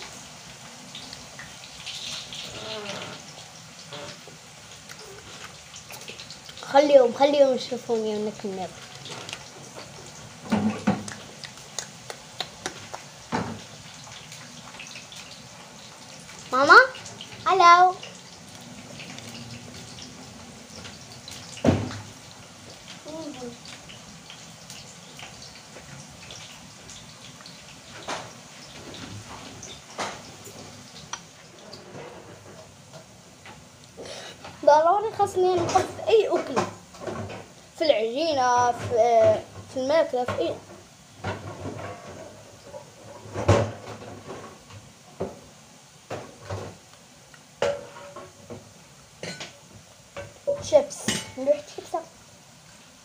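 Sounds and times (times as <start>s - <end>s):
potato slices sizzling in oil: 0.0s - 53.0s
oil popping: 8.2s - 15.2s.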